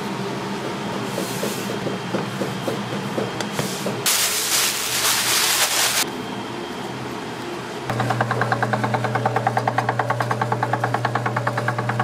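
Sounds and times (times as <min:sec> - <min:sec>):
loud hiss: 0:04.1 - 0:06.0.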